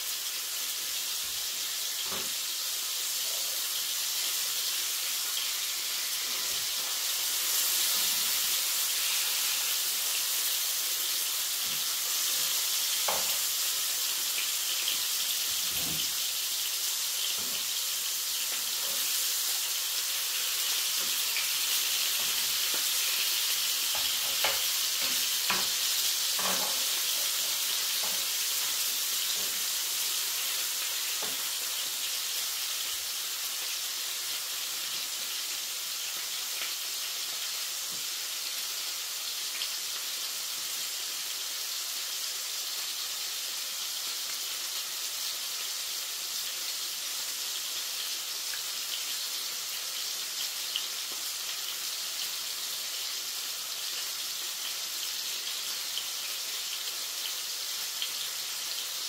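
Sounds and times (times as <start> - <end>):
meat sizzling in a frying pan: 0.0 - 59.0.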